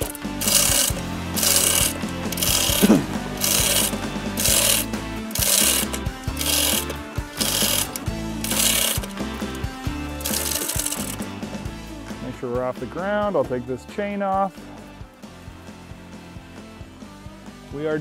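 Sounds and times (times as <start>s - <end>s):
chain hoist rattling: 0.0s - 9.1s, 10.2s - 11.2s.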